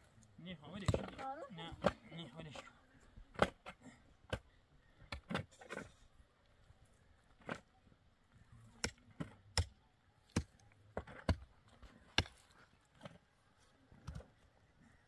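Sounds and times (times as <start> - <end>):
pickaxes striking stony earth: 0.7 - 2.2, 3.3 - 6.0, 7.3 - 7.7, 8.8 - 13.2.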